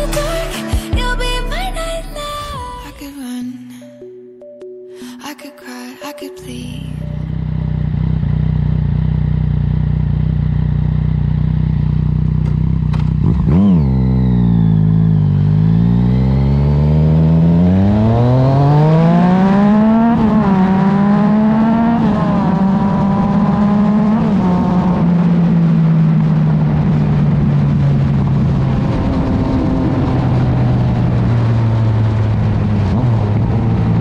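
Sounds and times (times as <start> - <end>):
motorcycle engine revving: 7.2 - 34.0.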